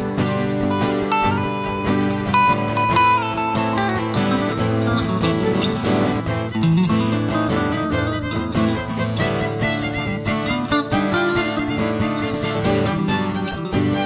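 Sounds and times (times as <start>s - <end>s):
acoustic guitar music: 0.0s - 14.0s.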